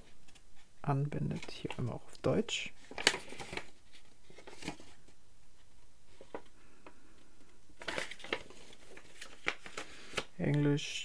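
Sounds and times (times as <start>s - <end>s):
paper rustling and crinkling: 2.8s - 6.5s, 7.8s - 10.3s.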